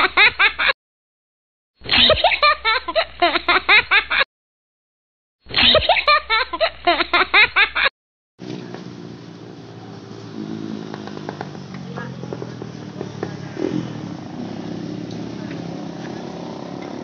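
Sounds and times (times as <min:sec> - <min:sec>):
person giggling: 0:01.8 - 0:04.3, 0:05.5 - 0:07.9.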